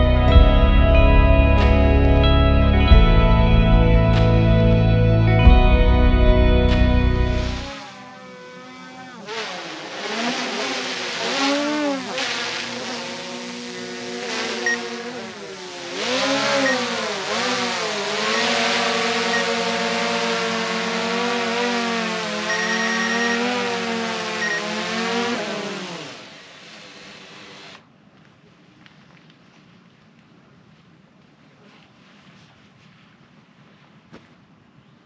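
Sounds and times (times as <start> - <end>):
drone motors whining: 1.0 - 27.8.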